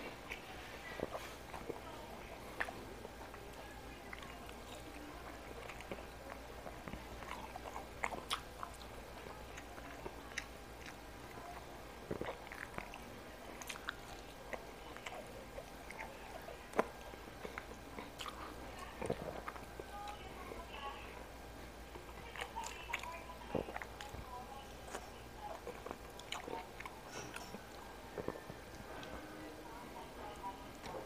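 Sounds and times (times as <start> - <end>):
person chewing food: 0.0 - 31.0.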